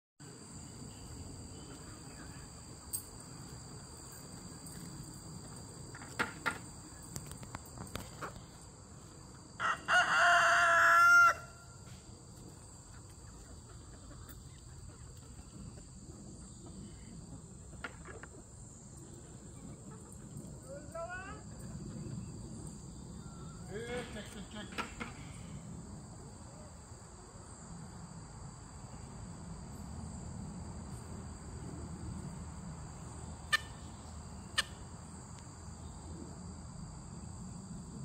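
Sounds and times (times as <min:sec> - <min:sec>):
insects droning: 0:00.2 - 0:38.0
rooster crowing: 0:09.6 - 0:11.8.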